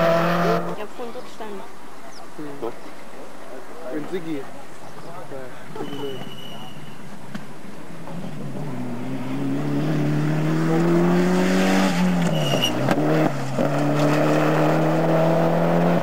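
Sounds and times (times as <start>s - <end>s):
rally car engine revving: 0.0s - 0.8s, 8.1s - 16.0s.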